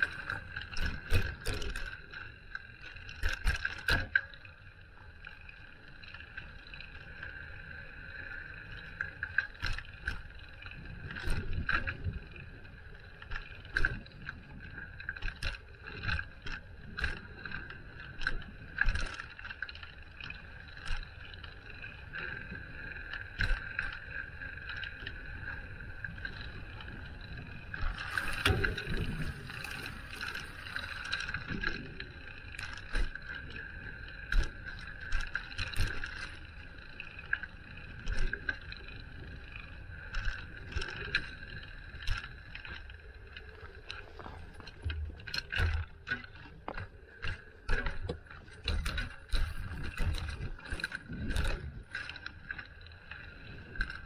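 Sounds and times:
bicycle wheels whirring: 21.1s - 31.4s
bicycle rattling over bumps: 23.3s - 33.5s.

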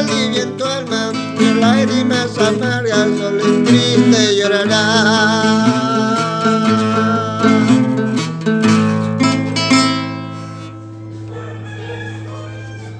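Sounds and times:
man singing: 0.0s - 8.3s
acoustic guitar strumming: 0.0s - 12.9s.

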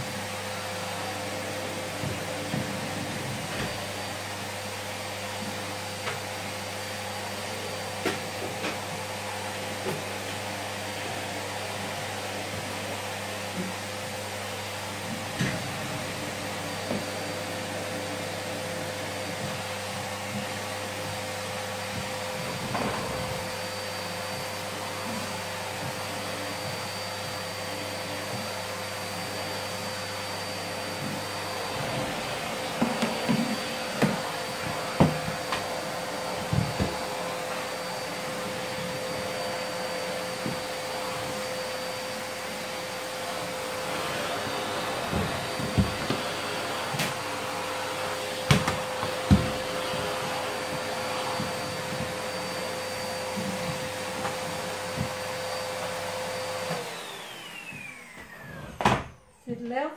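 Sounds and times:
vacuum cleaner running: 0.0s - 59.9s
vacuum nozzle knocking: 29.8s - 38.0s, 43.5s - 55.6s.

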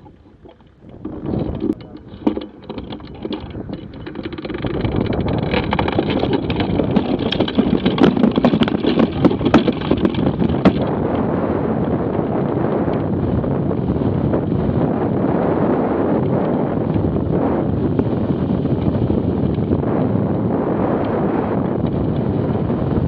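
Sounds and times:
trolley rattling and knocking: 0.0s - 11.0s
wind rushing over microphone: 0.0s - 23.0s.

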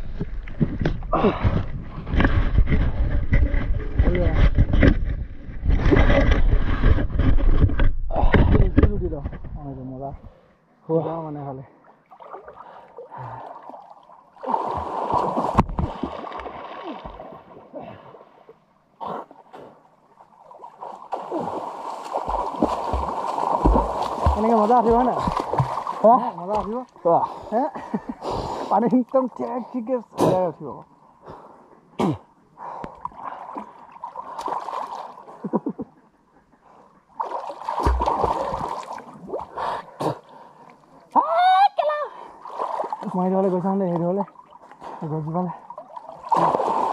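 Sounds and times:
water sloshing and splashing: 0.0s - 9.5s, 11.7s - 18.7s, 19.3s - 27.1s, 32.9s - 35.5s, 37.1s - 41.1s, 42.2s - 46.9s.

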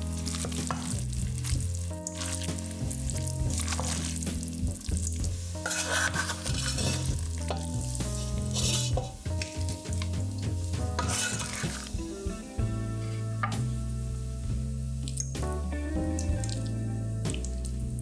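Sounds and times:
pasta stirred in metal pot: 0.1s - 12.0s.

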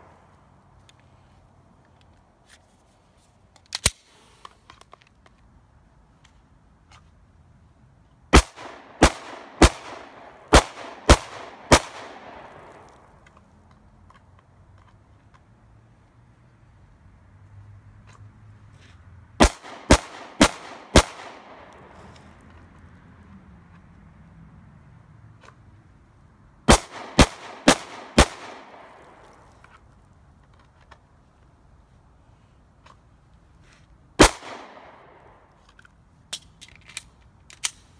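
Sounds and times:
pistol shots with echo: 8.3s - 12.9s, 19.4s - 21.9s, 26.7s - 29.2s, 34.2s - 35.3s.

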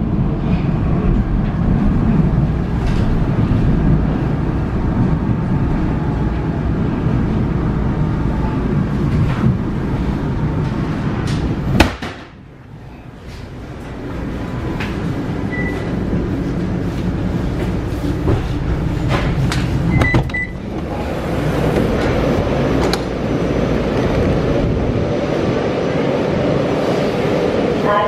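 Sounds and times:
metro carriage low rumble: 0.0s - 28.0s
underground platform noise: 0.0s - 28.0s
short beeps: 15.5s - 15.9s.

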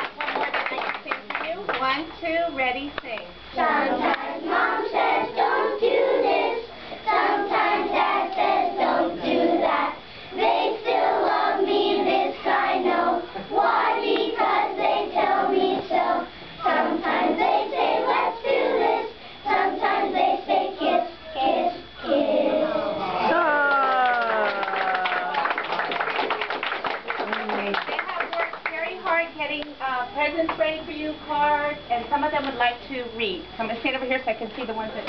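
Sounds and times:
children singing in unison: 3.6s - 23.0s.

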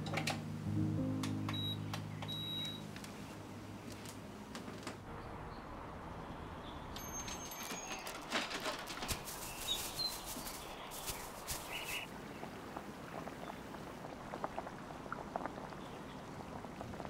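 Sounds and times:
bird chirps: 1.5s - 2.9s, 9.4s - 12.1s
quick rustles and clicks: 7.2s - 12.1s.

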